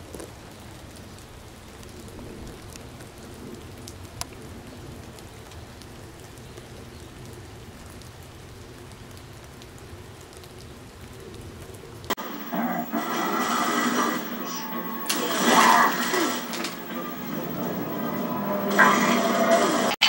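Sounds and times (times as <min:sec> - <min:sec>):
raindrop ticks: 0:00.0 - 0:12.5
light rain hiss: 0:00.0 - 0:20.0.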